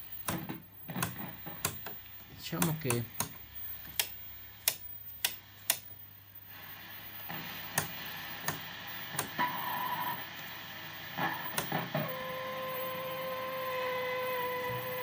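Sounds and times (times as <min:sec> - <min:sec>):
television hiss: 0:00.0 - 0:15.0
sharp clicks: 0:02.6 - 0:05.9
steady buzzing tone: 0:11.2 - 0:15.0.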